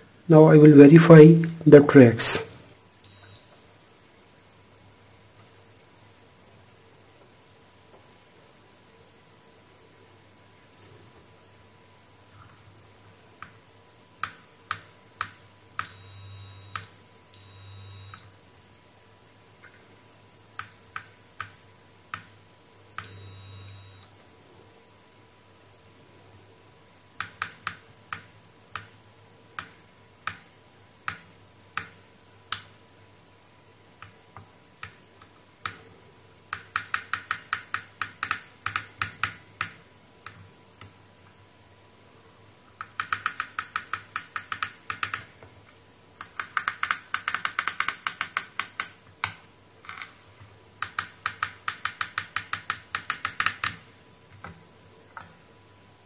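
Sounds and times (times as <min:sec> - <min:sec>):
probe tip clicking on circuit board: 0:36.5 - 0:40.9, 0:42.8 - 0:45.3.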